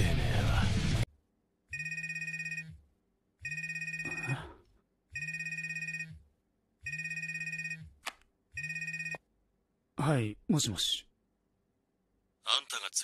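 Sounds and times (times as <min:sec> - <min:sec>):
smartphone ringing: 0:01.7 - 0:02.8, 0:03.4 - 0:04.4, 0:05.2 - 0:06.2, 0:06.8 - 0:08.0, 0:08.6 - 0:09.2.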